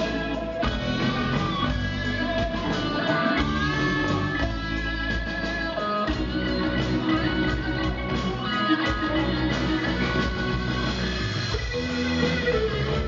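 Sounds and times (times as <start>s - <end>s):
electric guitars: 0.0s - 13.0s
rock band playing live: 0.0s - 13.0s.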